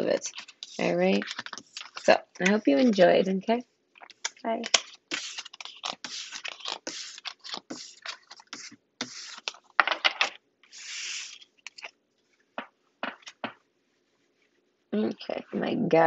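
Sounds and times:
cards being shuffled: 0:00.0 - 0:03.1, 0:04.0 - 0:11.9.

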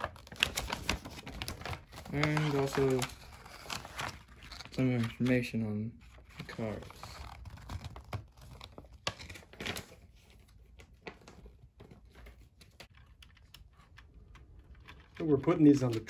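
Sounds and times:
paper rustling: 0:00.0 - 0:16.0.

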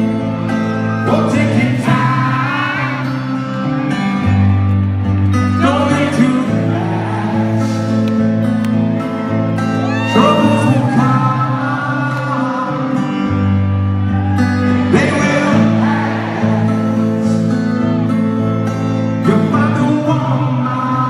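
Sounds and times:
amplified acoustic guitar chords: 0:00.0 - 0:21.0
person singing: 0:00.6 - 0:03.4, 0:09.9 - 0:13.6, 0:14.4 - 0:17.6.

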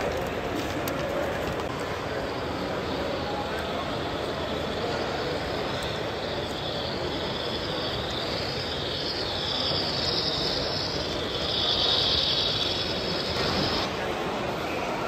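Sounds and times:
busy hall background noise: 0:00.0 - 0:15.0
model train hissing: 0:02.1 - 0:15.0.

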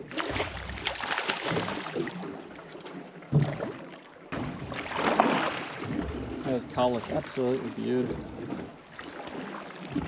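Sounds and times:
water around boat: 0:00.0 - 0:10.0
wind: 0:00.0 - 0:10.0.

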